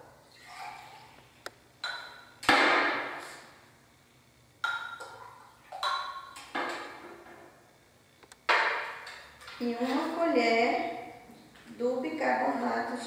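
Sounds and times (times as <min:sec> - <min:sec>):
glass pitcher clinking on glass: 0:01.8 - 0:02.3, 0:04.6 - 0:07.0.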